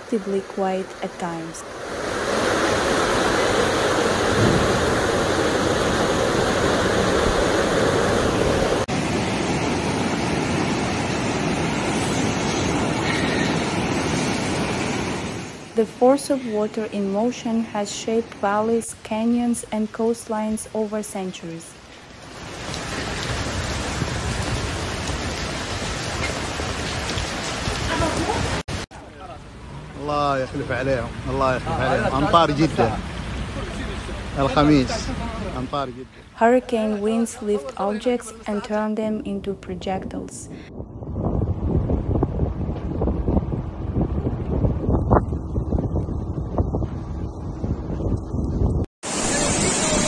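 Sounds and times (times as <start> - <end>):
heavy rain: 0.0 - 16.6, 21.4 - 37.2, 49.0 - 50.0
floodwater rushing: 0.0 - 17.6, 19.6 - 38.8, 49.0 - 50.0.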